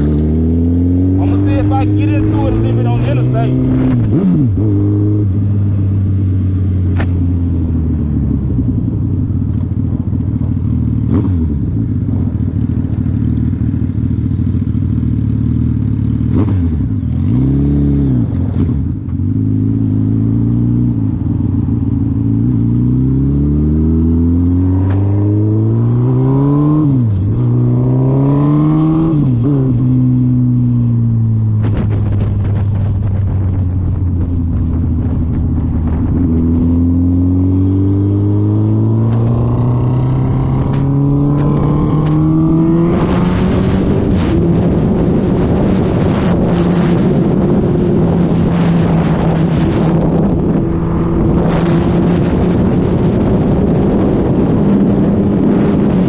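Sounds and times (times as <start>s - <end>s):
motorcycle engine accelerating: 0.0s - 56.0s
wind rush over microphone: 1.1s - 12.6s, 24.8s - 56.0s.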